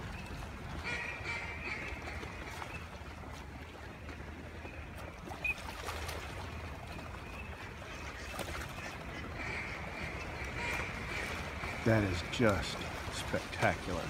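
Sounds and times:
ducks quacking: 0:00.8 - 0:02.7, 0:07.6 - 0:14.0.

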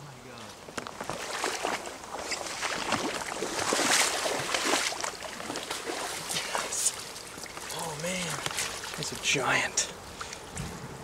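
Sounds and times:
fish thrashing water splashing: 0:01.1 - 0:09.2.

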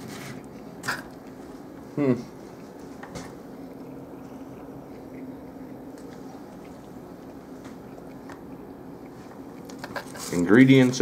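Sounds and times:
person chewing: 0:00.0 - 0:10.3
steady low hum: 0:00.0 - 0:11.0.

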